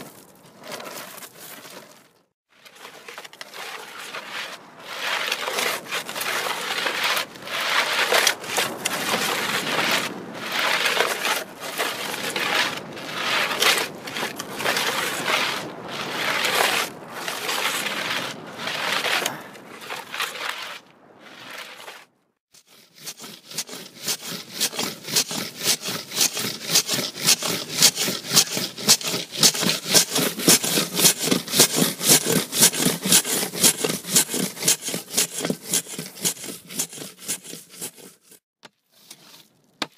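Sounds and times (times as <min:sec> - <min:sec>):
scraping on a hard surface: 0:00.0 - 0:39.9.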